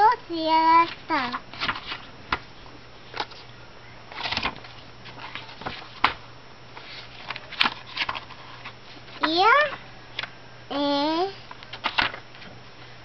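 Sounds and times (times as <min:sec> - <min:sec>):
book pages turning: 0:00.8 - 0:02.4, 0:03.1 - 0:03.5, 0:04.1 - 0:06.2, 0:06.8 - 0:09.4, 0:11.7 - 0:12.5
paper rustle: 0:00.8 - 0:02.4, 0:04.1 - 0:06.2, 0:06.8 - 0:09.3, 0:11.7 - 0:12.5.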